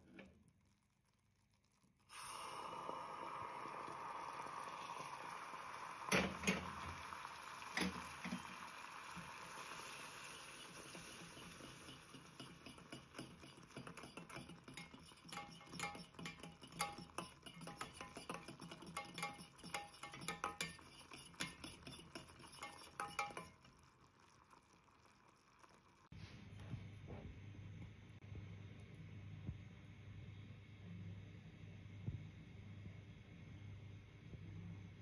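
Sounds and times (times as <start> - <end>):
caramel bubbling: 0.0 - 26.2
spoon clinking against saucepan: 11.2 - 23.6.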